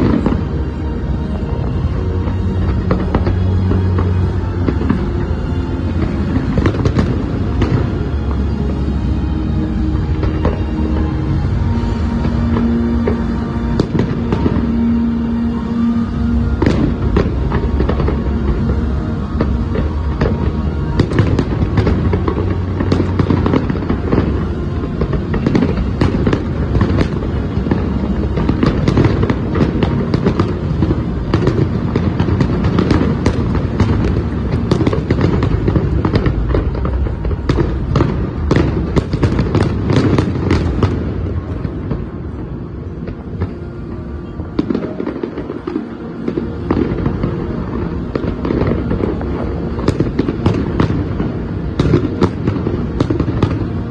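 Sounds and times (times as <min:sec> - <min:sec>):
fireworks bangs: 0:00.0 - 0:53.9
low rumble: 0:00.0 - 0:53.9.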